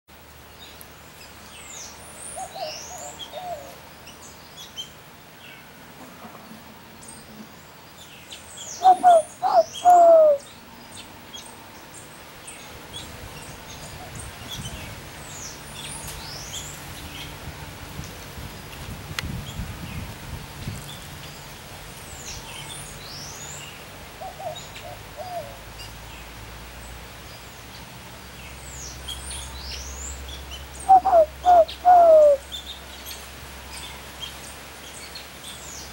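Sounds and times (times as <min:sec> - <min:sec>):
dove cooing: 0:02.4 - 0:03.8, 0:08.8 - 0:10.5, 0:24.2 - 0:25.6, 0:30.8 - 0:32.4
birds chirping: 0:06.4 - 0:17.4, 0:28.4 - 0:35.9.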